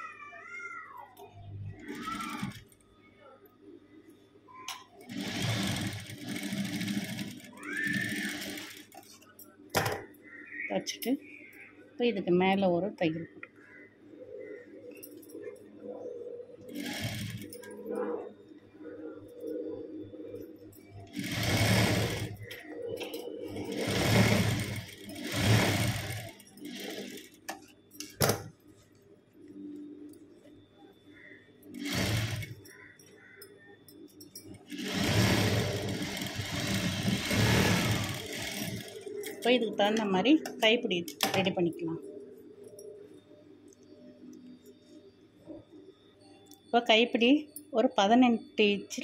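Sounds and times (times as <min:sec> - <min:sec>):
sewing machine running: 0:01.9 - 0:02.7, 0:05.0 - 0:09.1, 0:16.7 - 0:17.7, 0:21.1 - 0:22.6, 0:23.6 - 0:27.4, 0:31.7 - 0:32.6, 0:34.7 - 0:39.4.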